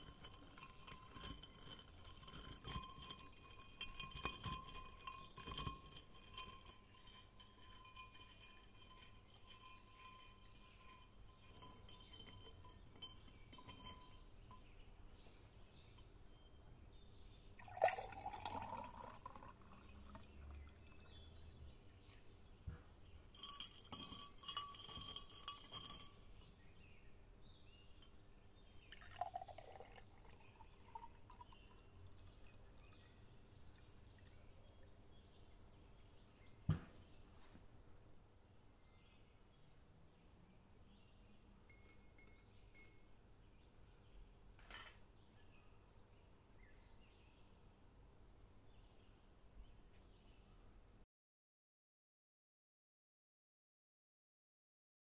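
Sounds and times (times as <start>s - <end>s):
ice clinking in glass pitcher: 0.0s - 14.8s, 17.5s - 22.3s, 23.2s - 35.0s, 41.7s - 43.1s
syrup glugging while poured: 17.6s - 21.0s, 28.8s - 31.8s.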